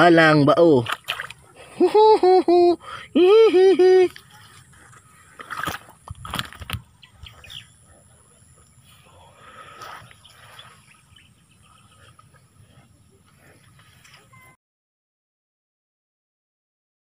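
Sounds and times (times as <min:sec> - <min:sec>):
fish wriggling in grass: 0:04.2 - 0:06.9
fish thudding on grass: 0:05.4 - 0:06.9.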